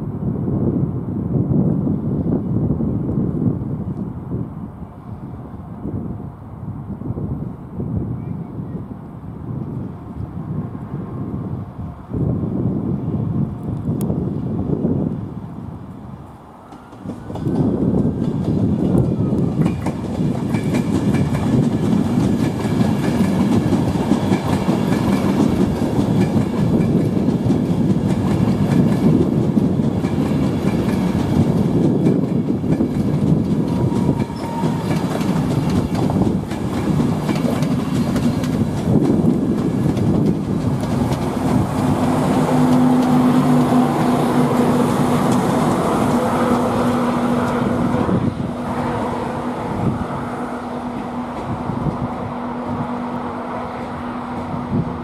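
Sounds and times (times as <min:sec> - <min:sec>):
train wheels rumbling and clicking: 0:16.6 - 0:55.0.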